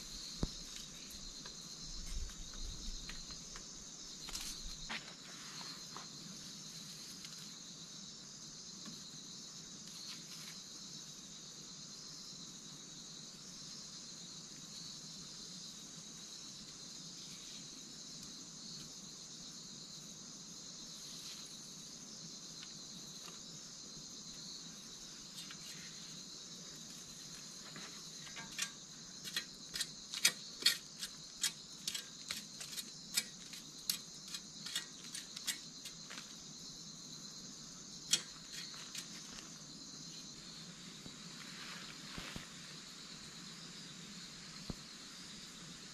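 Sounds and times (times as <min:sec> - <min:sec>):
shrill insect chorus: 0:00.0 - 0:45.9
dry sticks clicking and knocking: 0:28.2 - 0:36.3, 0:38.1 - 0:39.2.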